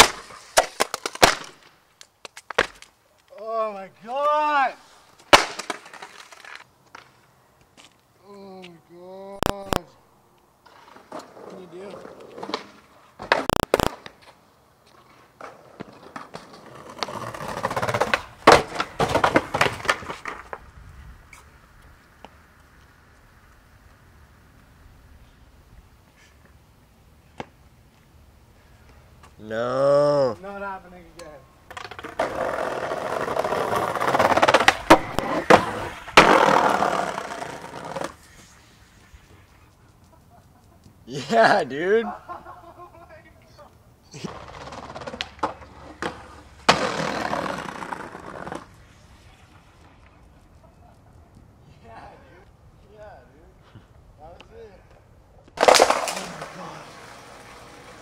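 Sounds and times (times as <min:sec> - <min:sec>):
skateboard landing clatter: 0:00.0 - 0:02.9, 0:05.2 - 0:07.1, 0:12.3 - 0:14.4, 0:15.4 - 0:20.6, 0:31.7 - 0:38.2, 0:44.3 - 0:48.7, 0:55.5 - 0:58.0
skateboard tail pop: 0:00.0 - 0:02.9, 0:05.3 - 0:07.1, 0:12.4 - 0:14.2, 0:33.7 - 0:38.2, 0:55.6 - 0:58.0
skateboard wheels rolling on concrete: 0:00.0 - 0:58.0.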